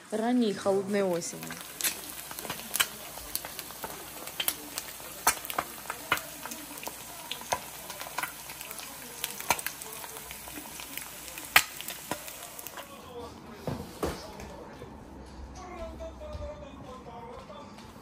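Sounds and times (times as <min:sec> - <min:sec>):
eggs sizzling in a pan: 0:00.0 - 0:13.0
sharp pops and crackles: 0:01.5 - 0:12.3.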